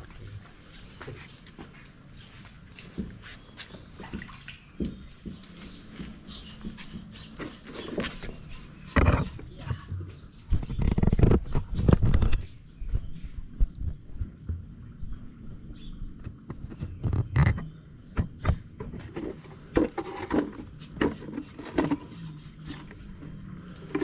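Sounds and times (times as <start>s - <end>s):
muffled rumble with knocks: 8.8s - 15.1s, 16.1s - 24.0s.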